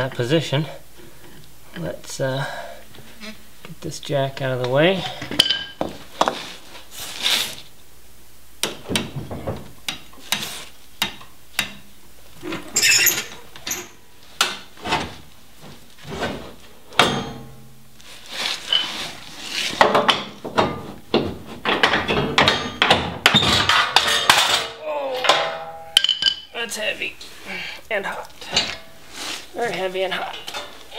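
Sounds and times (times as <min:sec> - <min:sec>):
knocks and clanks on steel: 0:16.9 - 0:17.7, 0:19.8 - 0:26.5.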